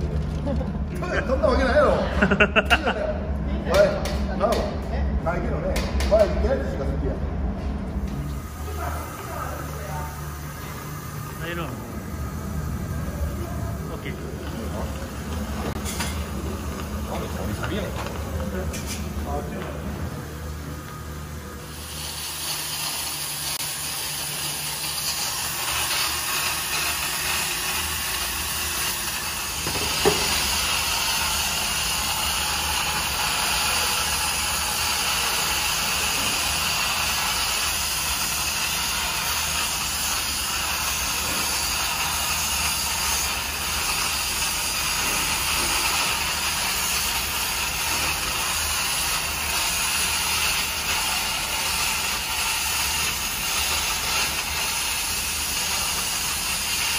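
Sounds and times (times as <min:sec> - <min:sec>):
low hum: 0:00.0 - 0:21.8
steam hissing: 0:08.2 - 0:18.2, 0:20.4 - 0:56.9.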